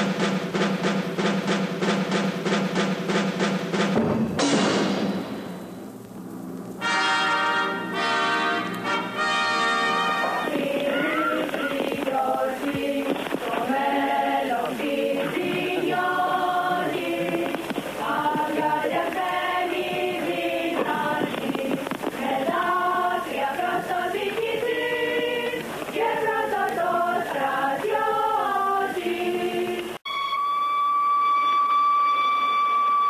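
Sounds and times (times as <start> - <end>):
choir singing in harmony: 7.1 - 30.0.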